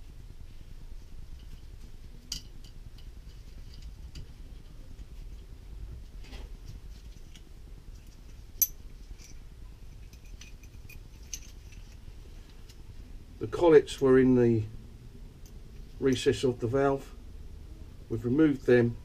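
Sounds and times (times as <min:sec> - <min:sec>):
metal parts clinking: 0:08.3 - 0:09.4, 0:10.0 - 0:12.0.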